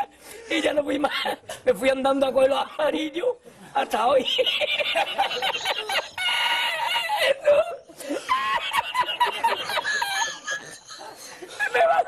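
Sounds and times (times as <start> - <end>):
man laughing uncontrollably: 4.4 - 12.0.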